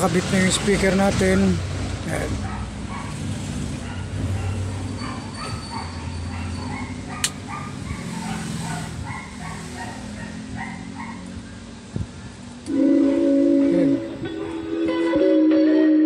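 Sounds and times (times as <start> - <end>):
sharp click: 7.2 - 7.4.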